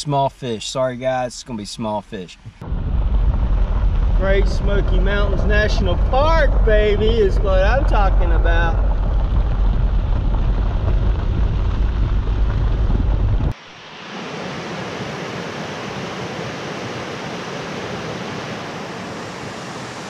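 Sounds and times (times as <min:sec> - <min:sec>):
wind noise: 0:02.4 - 0:20.0
car rolling on gravel road: 0:02.6 - 0:13.6.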